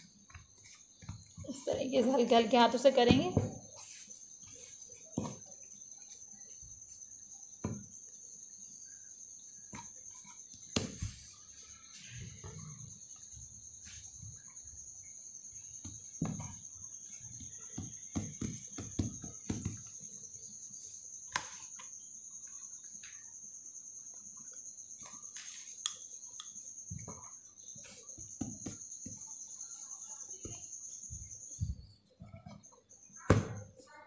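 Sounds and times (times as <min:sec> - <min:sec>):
hands patting dough on a board: 0:00.0 - 0:02.0, 0:15.8 - 0:20.1, 0:26.9 - 0:29.8
rolling pin on dough: 0:00.0 - 0:02.2, 0:02.8 - 0:08.2, 0:15.8 - 0:20.1, 0:26.8 - 0:33.9.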